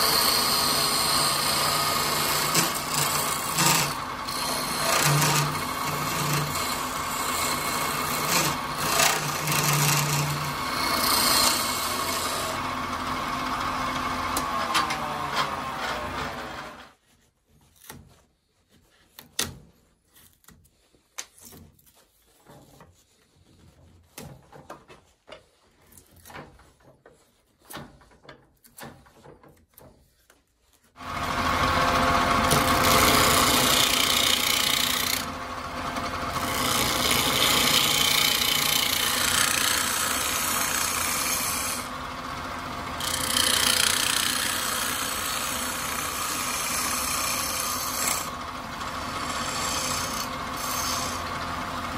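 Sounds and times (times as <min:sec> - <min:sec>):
gouge cutting with hiss of shavings: 0:00.0 - 0:12.4
wood lathe running: 0:00.0 - 0:16.9, 0:31.0 - 0:51.9.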